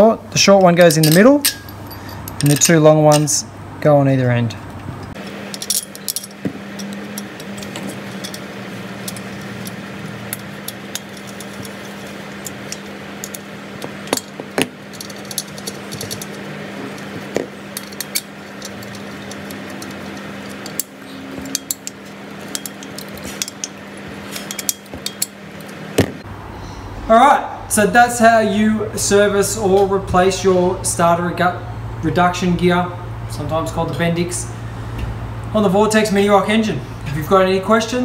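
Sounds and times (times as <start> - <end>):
steady low hum: 0.0 - 38.0
metal clicks of screws and key: 0.6 - 3.3, 5.1 - 25.8.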